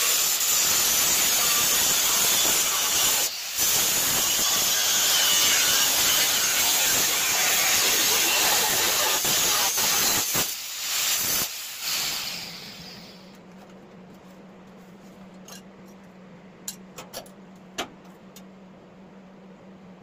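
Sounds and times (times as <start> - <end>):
angle grinder cutting steel: 0.0 - 13.1
low steady hum: 12.6 - 20.0.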